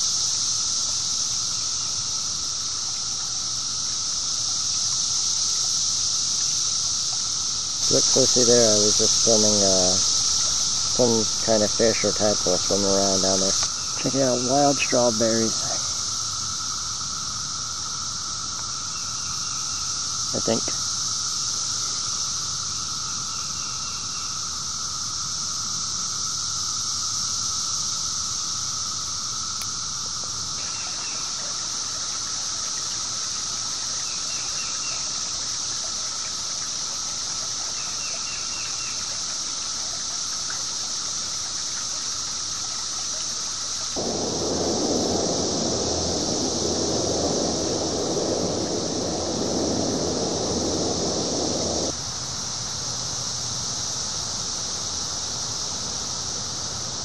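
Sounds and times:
cicadas droning: 0:00.0 - 0:57.0
low rushing noise: 0:44.0 - 0:52.0.

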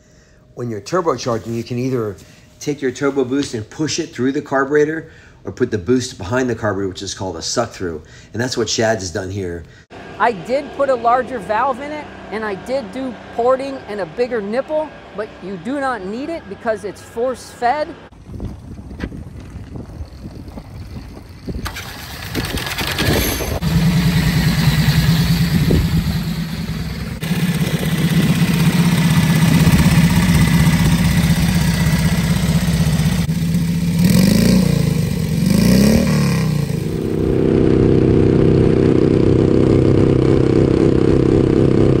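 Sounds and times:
motorcycle engine at speed: 0:18.2 - 0:42.0
motorcycle engine revving: 0:19.4 - 0:42.0.

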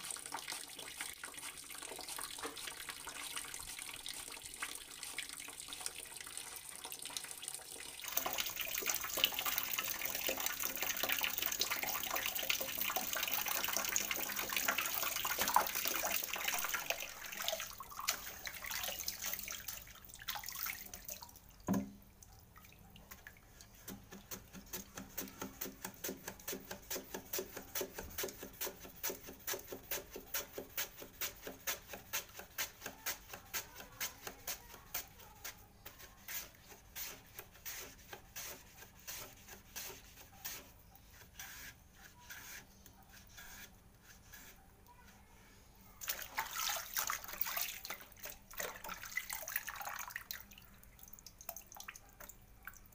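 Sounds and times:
running water: 0:00.0 - 0:41.2, 0:46.0 - 0:52.9
knock: 0:21.7 - 0:22.0
potato slicing on mandoline: 0:23.8 - 0:42.7.

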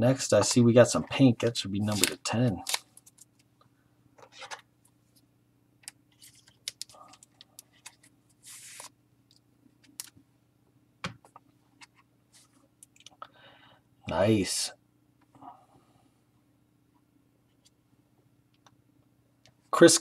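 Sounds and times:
faint steady hum: 0:00.0 - 0:20.0
trading cards being handled: 0:01.8 - 0:03.4, 0:05.8 - 0:09.0.

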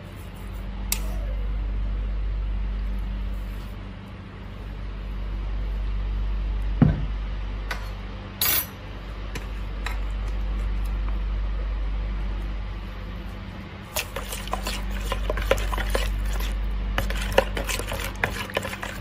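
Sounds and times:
steady low hum: 0:00.0 - 0:19.0
dishes knocking and clinking: 0:06.8 - 0:07.1.

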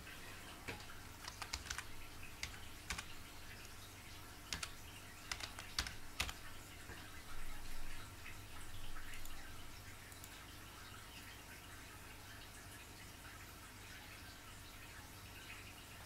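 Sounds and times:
fish tank hum and water: 0:00.0 - 0:16.0
keyboard typing: 0:01.0 - 0:03.8, 0:04.4 - 0:06.5.

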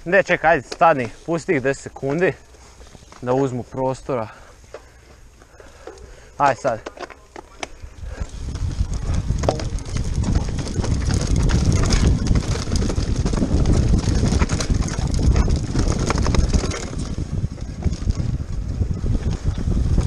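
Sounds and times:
bike clicks and rattles: 0:00.2 - 0:03.5, 0:04.6 - 0:20.0
tyres rolling over stones: 0:05.9 - 0:18.7
wind rumble on microphone: 0:07.8 - 0:20.0.

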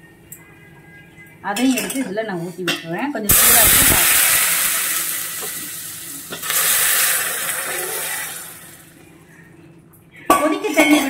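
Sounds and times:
hissing and sizzling: 0:03.3 - 0:09.0
water pouring into hot pan: 0:03.3 - 0:09.0.

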